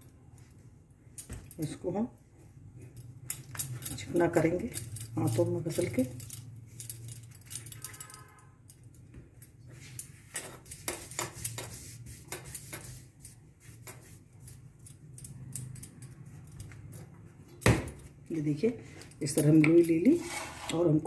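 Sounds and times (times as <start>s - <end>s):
hands smoothing dough: 10.6s - 14.6s.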